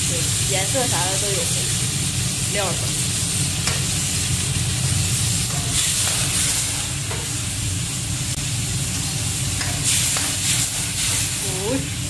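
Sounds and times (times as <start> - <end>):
meat sizzling in a wok: 0.0 - 12.0
metal spatula scraping wok: 5.3 - 7.4, 9.6 - 11.7.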